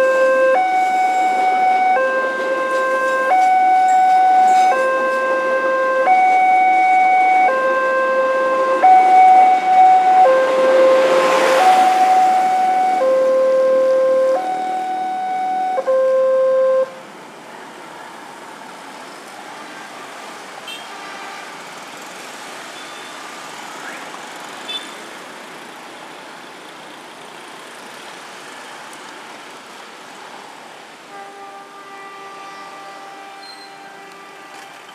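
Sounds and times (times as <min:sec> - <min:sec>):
road traffic: 0:00.0 - 0:34.9
level crossing alarm two-tone: 0:01.4 - 0:16.9.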